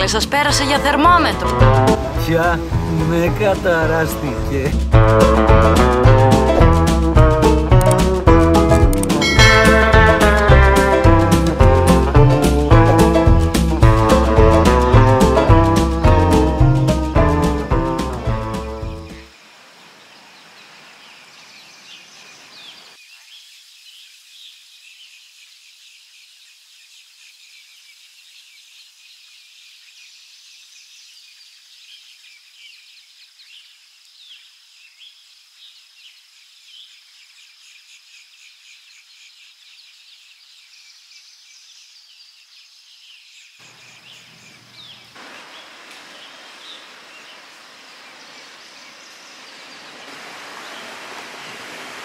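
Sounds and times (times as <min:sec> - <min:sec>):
broad rushing noise: 0:45.2 - 0:52.0.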